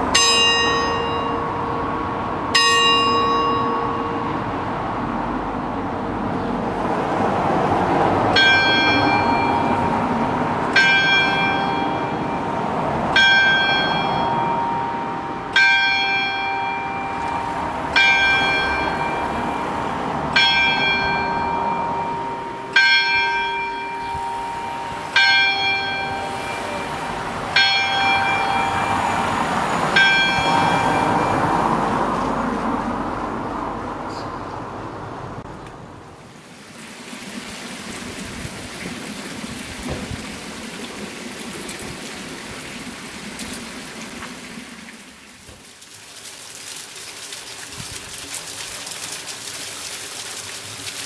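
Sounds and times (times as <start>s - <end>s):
clock tower bell striking: 0.0s - 4.7s, 8.3s - 32.3s.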